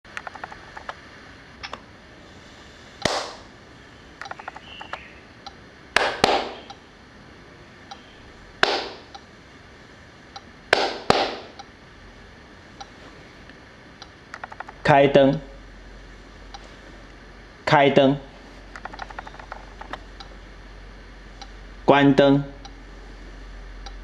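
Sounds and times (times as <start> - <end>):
sharp hand claps: 3.0 - 3.4, 6.0 - 6.6, 8.6 - 9.0, 10.7 - 11.5.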